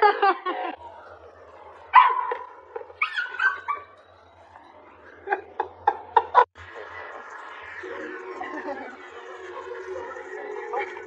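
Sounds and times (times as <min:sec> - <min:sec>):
dog barking: 0:01.9 - 0:03.9
dog yipping: 0:03.0 - 0:04.0.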